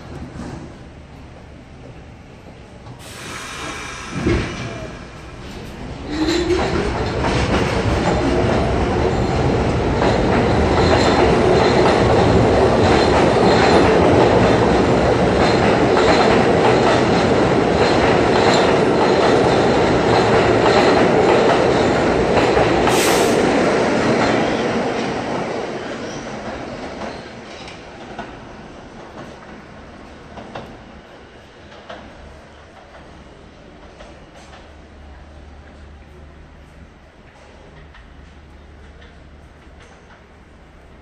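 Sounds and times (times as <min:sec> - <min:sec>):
train wheel rumble: 0:00.0 - 0:41.0
brief high hiss: 0:03.0 - 0:05.8, 0:22.9 - 0:23.4.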